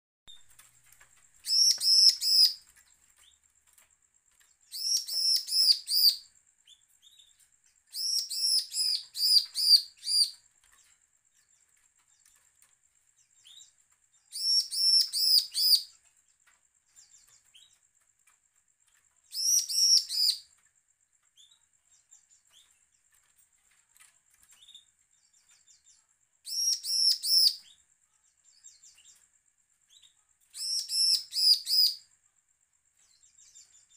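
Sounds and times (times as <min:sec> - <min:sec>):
faint bird chips: 0:00.3 - 0:33.9
bird song bursts: 0:01.2 - 0:03.4, 0:04.7 - 0:10.4, 0:13.3 - 0:16.0, 0:19.2 - 0:20.5, 0:24.5 - 0:27.8, 0:29.9 - 0:32.1.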